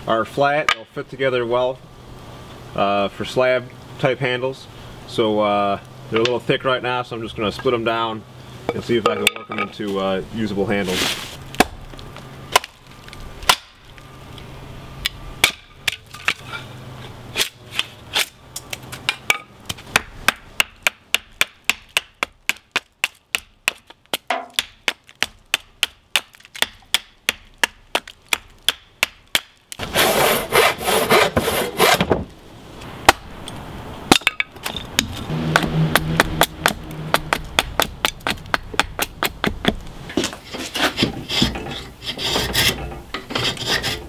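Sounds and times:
scraping and crackling: 9.1s - 14.5s, 15.4s - 20.6s, 21.5s - 44.0s
hatchet splitting wood: 11.5s - 13.9s, 15.0s - 16.5s, 17.4s - 32.2s, 33.0s - 33.3s, 34.1s - 44.0s.

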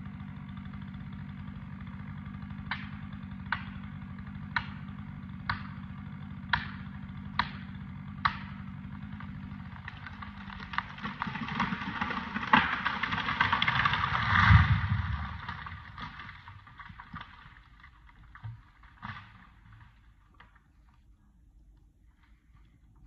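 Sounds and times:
wood cracking: 0.3s - 21.0s
branches crashing through trees: 0.6s - 20.6s
tree trunk thudding on ground: 6.4s - 19.9s
debris snapping: 6.5s - 20.7s.

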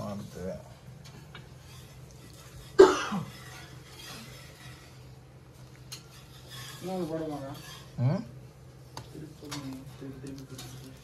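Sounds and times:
person coughing: 2.8s - 3.3s.

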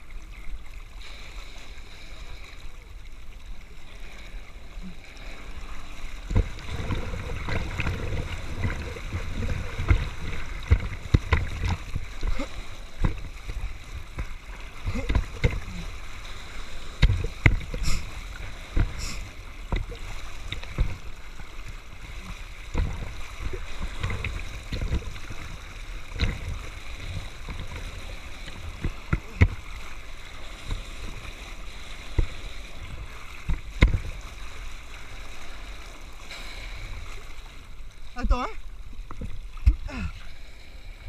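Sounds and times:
sea water rushing and spraying: 0.0s - 41.0s
board thumping and slapping water: 5.7s - 36.2s, 37.3s - 40.2s.

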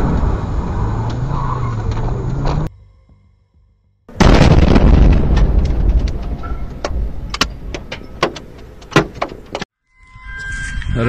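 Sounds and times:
deep explosion rumble: 4.1s - 7.8s.

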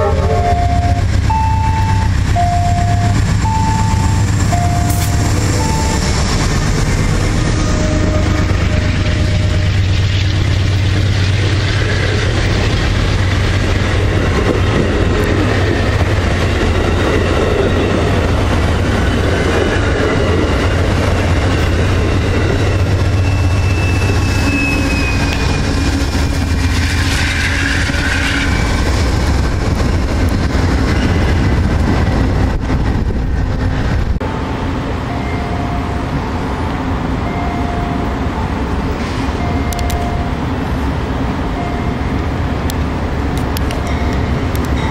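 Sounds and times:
deep engine hum: 0.0s - 18.4s
diesel locomotive passing: 0.0s - 44.9s
train wheel and rail noise: 0.0s - 44.9s
thin squeal: 22.7s - 25.8s.

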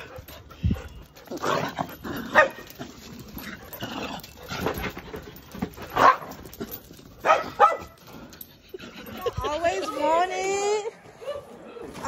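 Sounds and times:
dogs barking: 1.4s - 2.8s, 5.9s - 6.5s, 7.2s - 8.1s.

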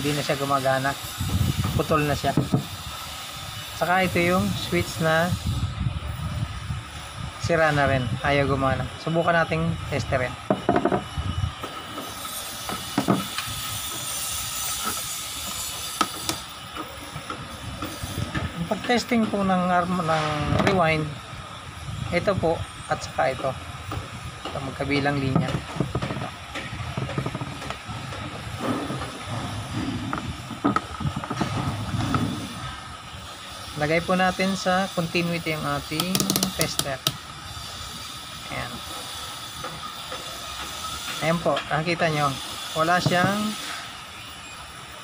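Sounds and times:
steady background hiss: 0.0s - 45.0s
test probes clicking: 36.0s - 37.2s.

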